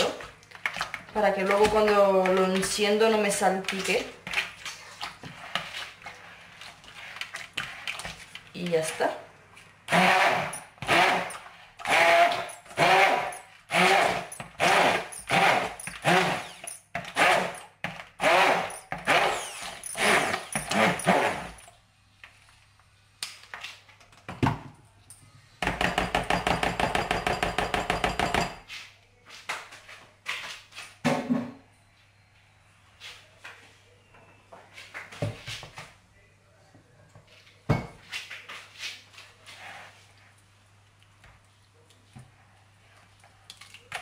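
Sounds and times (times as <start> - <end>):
immersion blender pureeing: 9.9 - 17.6, 18.2 - 21.5.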